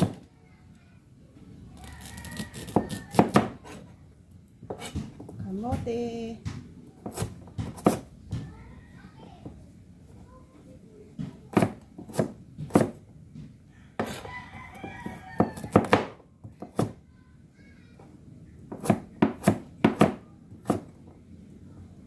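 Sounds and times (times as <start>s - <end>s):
cleaver chopping on cutting board: 2.3s - 3.8s, 6.5s - 8.4s, 11.5s - 13.0s, 14.0s - 14.3s, 18.7s - 20.9s.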